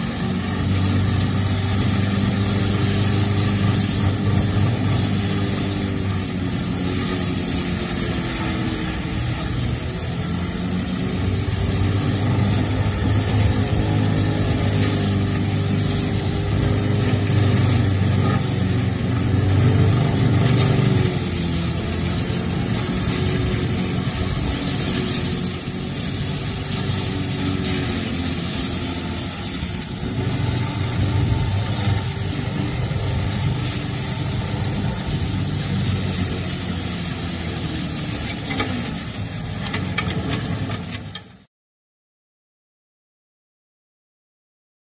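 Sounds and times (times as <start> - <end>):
diesel engine under load: 0.0 - 41.5
mulcher shredding grass: 0.0 - 41.5.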